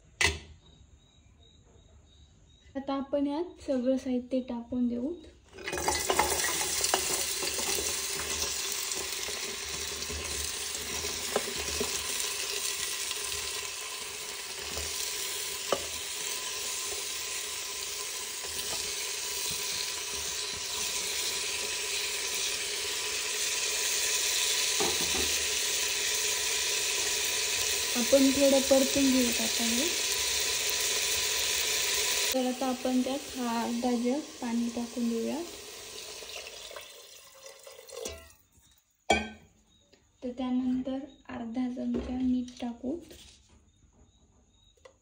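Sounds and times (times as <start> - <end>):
vegetables sizzling in hot oil: 5.6 - 38.4.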